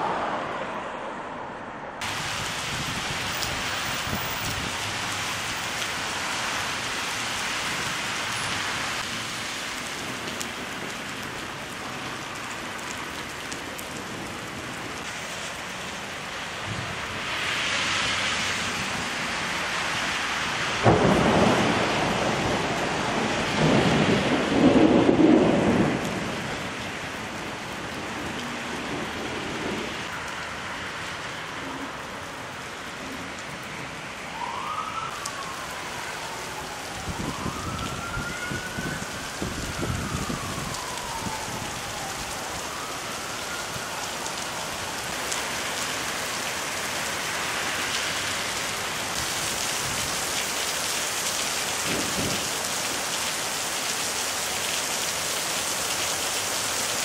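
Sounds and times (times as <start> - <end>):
heavy rain falling: 2.0 - 57.0
thunder rumble: 20.8 - 26.8, 36.9 - 42.1
siren wailing: 33.0 - 45.6.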